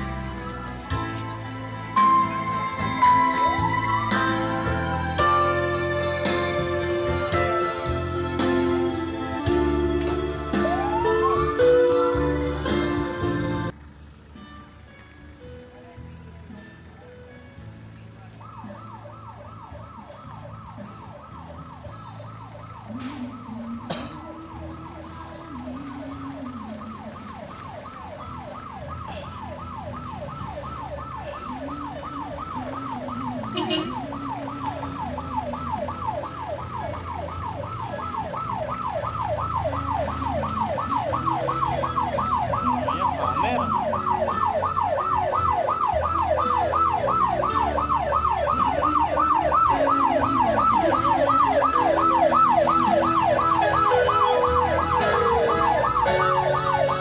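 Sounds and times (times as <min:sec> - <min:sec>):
warbling electronic siren: 0:10.5 - 0:12.2, 0:18.4 - 0:57.0.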